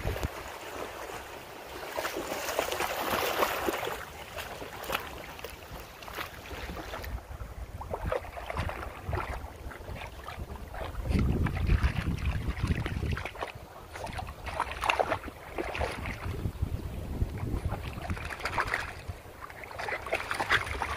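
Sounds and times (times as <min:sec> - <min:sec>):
wind on microphone: 0:00.0 - 0:00.7, 0:05.6 - 0:20.9
dog splashing through water: 0:00.0 - 0:07.2, 0:07.8 - 0:16.5, 0:17.3 - 0:20.9.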